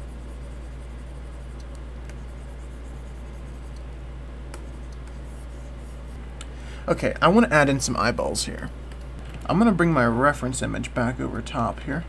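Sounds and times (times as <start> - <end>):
stylus scratching on tablet: 0.0 - 6.2
low electrical hum: 0.0 - 12.0.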